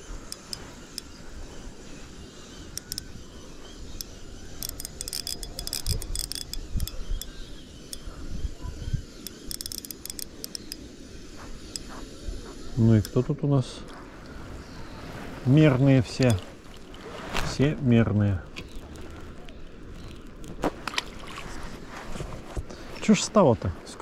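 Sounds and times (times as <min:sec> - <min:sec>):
fishing reel clicking and jingling: 0:00.1 - 0:12.0, 0:12.8 - 0:13.2, 0:16.1 - 0:16.9.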